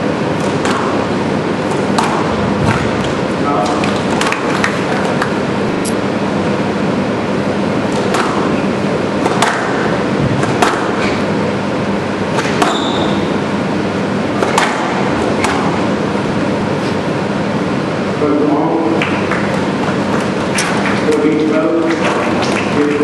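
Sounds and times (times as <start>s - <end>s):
squash ball smacking rackets and walls: 0.0s - 5.4s, 7.8s - 11.5s, 12.2s - 17.0s, 19.0s - 23.0s
background hiss of hall: 0.0s - 23.0s
shoe squeak: 12.5s - 13.3s.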